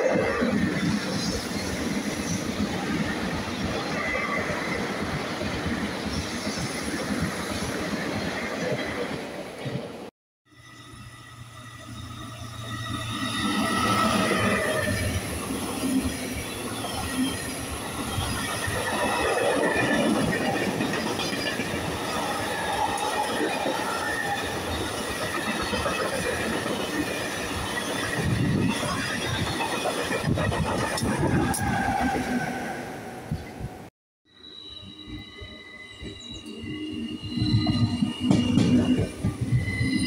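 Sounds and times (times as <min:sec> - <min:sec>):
freight train rumbling and rattling: 0:12.0 - 0:33.9, 0:37.2 - 0:40.0.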